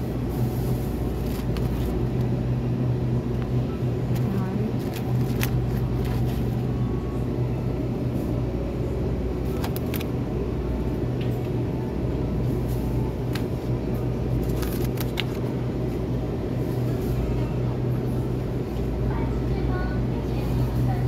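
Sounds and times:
refrigerated cases humming: 0.0 - 21.0.

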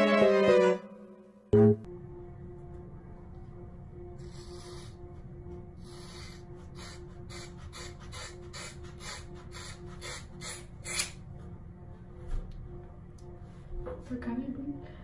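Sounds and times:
scissors cutting hair: 6.2 - 11.2.

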